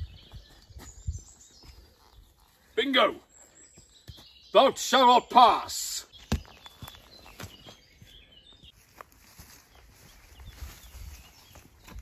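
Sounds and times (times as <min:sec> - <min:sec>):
footsteps on woodland path: 0:00.0 - 0:04.8, 0:06.0 - 0:12.0
faint birdsong: 0:00.0 - 0:12.0.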